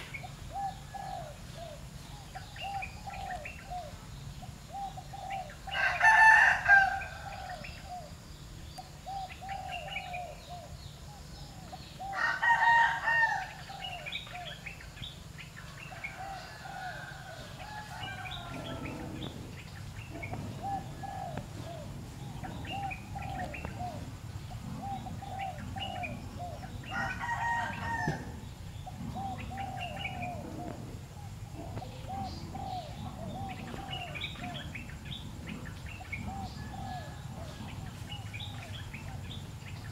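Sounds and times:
small birds chirping: 0:00.0 - 0:39.9
rooster crowing: 0:05.7 - 0:07.9, 0:12.0 - 0:14.1, 0:15.9 - 0:19.4, 0:26.8 - 0:28.4, 0:36.3 - 0:37.8.

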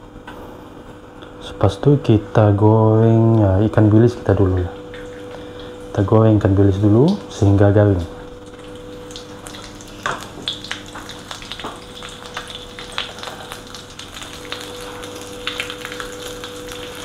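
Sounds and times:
fish frying in hot oil: 0:03.9 - 0:17.0.

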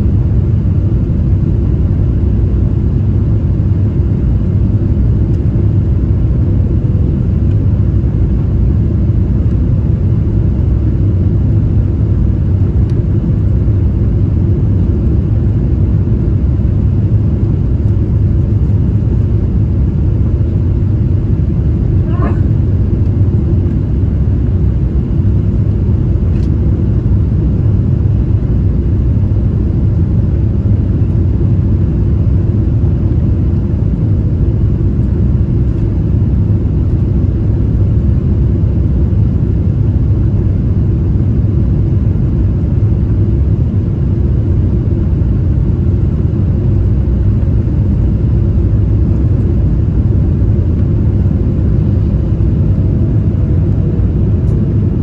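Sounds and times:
faint engine whine: 0:00.0 - 0:55.0
jet engines rumbling: 0:00.0 - 0:55.0
airflow past wing: 0:21.3 - 0:25.2.

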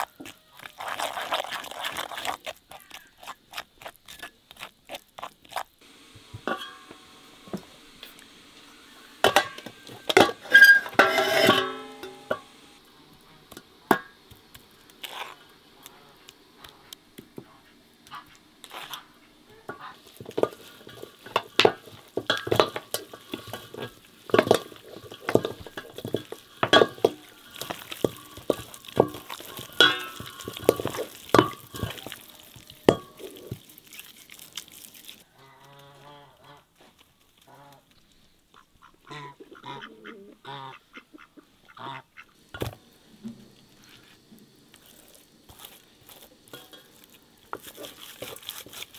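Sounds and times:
wet squelching of meat kneaded: 0:00.0 - 0:05.8, 0:22.9 - 0:35.4, 0:43.6 - 0:48.9
goose honking: 0:38.6 - 0:42.3.

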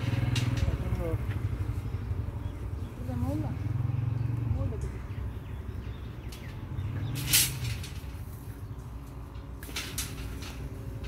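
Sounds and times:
metallic clicks and knocks: 0:00.0 - 0:01.4, 0:09.0 - 0:11.0.

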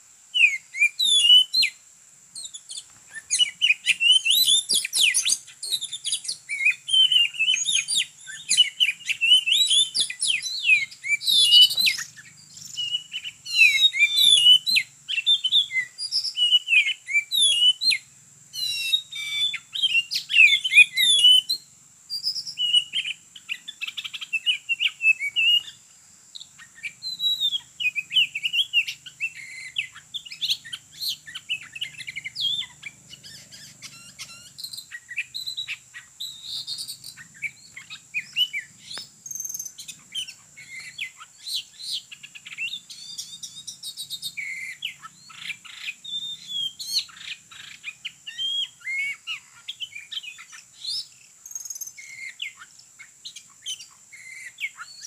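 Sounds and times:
bird whistles and chirps: 0:00.3 - 0:25.8, 0:26.4 - 0:55.0.

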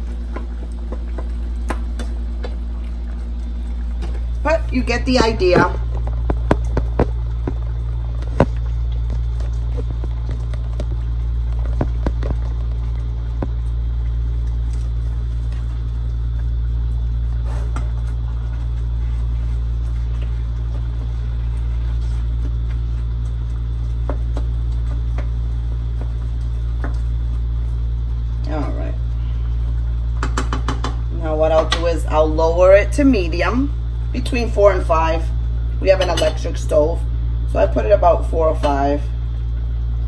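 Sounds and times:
steady low rumble: 0:00.0 - 0:40.0.

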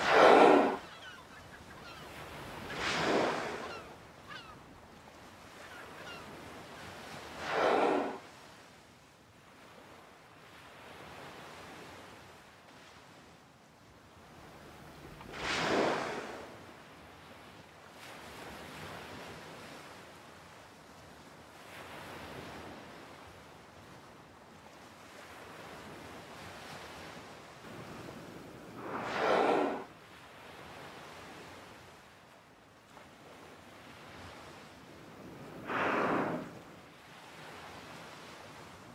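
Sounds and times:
whale blow exhalation: 0:00.0 - 0:01.2, 0:02.6 - 0:03.9, 0:07.2 - 0:08.3, 0:15.2 - 0:16.6, 0:28.5 - 0:30.0, 0:35.4 - 0:36.8
open sea wash: 0:00.0 - 0:38.9
wind: 0:00.0 - 0:38.9.

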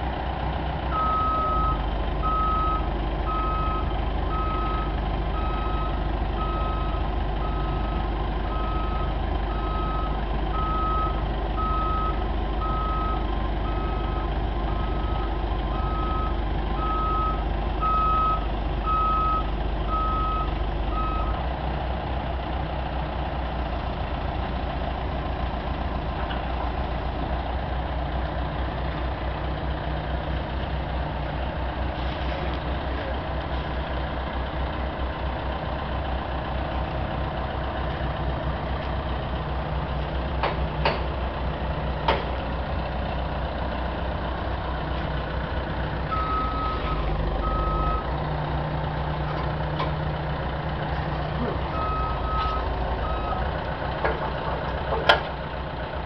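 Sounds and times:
engine running: 0:00.0 - 0:56.0
vehicle backup alarm beeping: 0:00.9 - 0:21.4, 0:46.0 - 0:50.0, 0:51.4 - 0:55.4.

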